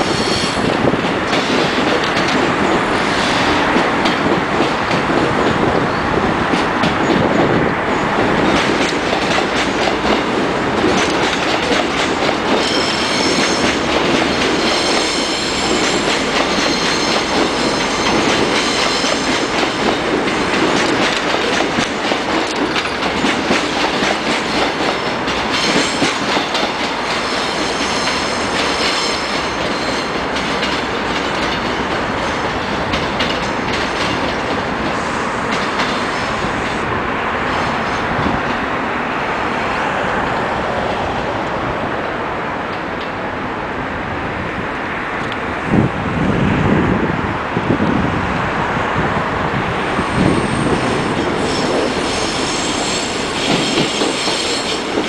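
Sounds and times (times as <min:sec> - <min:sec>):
train wheels rumbling on rails: 0:00.0 - 0:55.0
clickety-clack over rail joints: 0:00.6 - 0:38.8, 0:47.6 - 0:55.0
high wheel squeal: 0:12.6 - 0:19.3, 0:50.0 - 0:55.0.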